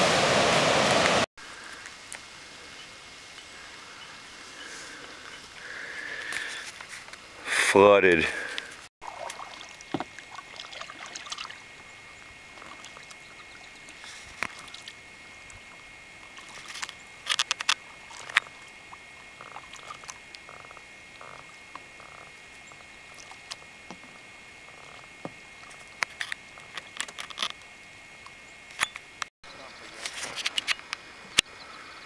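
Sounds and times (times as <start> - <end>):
paddle splashing water: 8.3 - 26.0.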